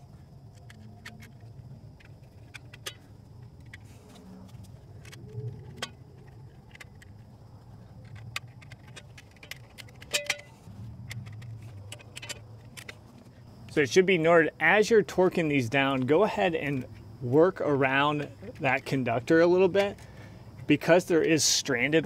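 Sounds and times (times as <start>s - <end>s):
metallic clicks and clinks: 4.5s - 13.8s
steady low rumble: 10.4s - 21.3s.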